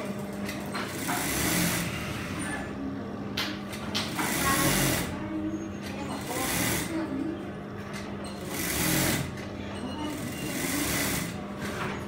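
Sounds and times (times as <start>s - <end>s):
sewing machine stitching: 0.9s - 2.6s, 4.1s - 5.2s, 8.4s - 9.4s, 10.1s - 11.8s.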